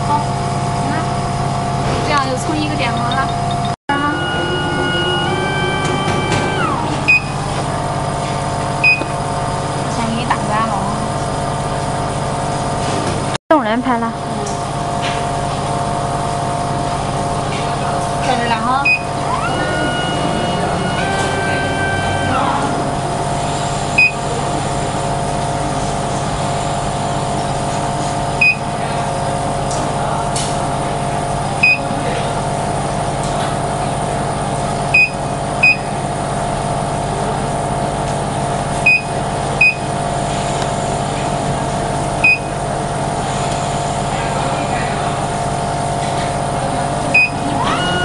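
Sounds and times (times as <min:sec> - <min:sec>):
machine electrical hum and fans: 0:00.0 - 0:48.0
short high electronic beeps: 0:03.1 - 0:07.4, 0:38.8 - 0:39.9.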